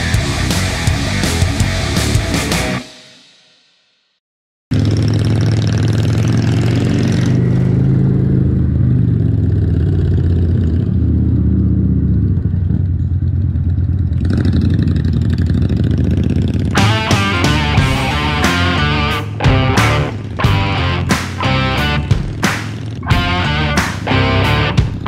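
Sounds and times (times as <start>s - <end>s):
motorcycle engine running: 0.0s - 2.8s, 4.7s - 25.0s
rock guitar music: 0.0s - 3.1s, 16.7s - 25.0s.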